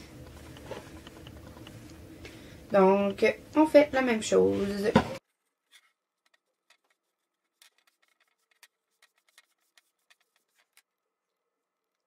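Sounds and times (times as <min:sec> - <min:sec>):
faint clicks and taps: 0:00.2 - 0:03.2.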